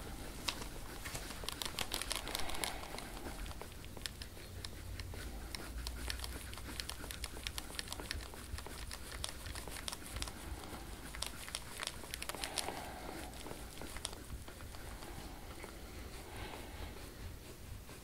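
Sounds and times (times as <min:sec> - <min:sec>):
hands rubbing skin and clothing: 0:00.0 - 0:18.0
low steady hum: 0:00.0 - 0:18.0.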